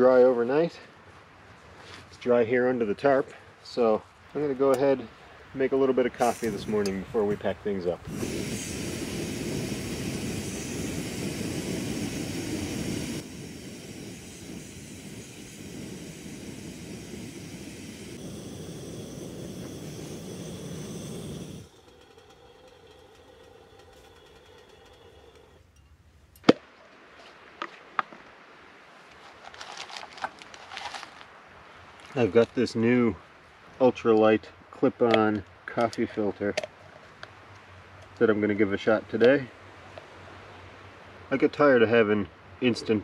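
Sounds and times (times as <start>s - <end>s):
camp stove burner roaring: 4.4s - 26.4s.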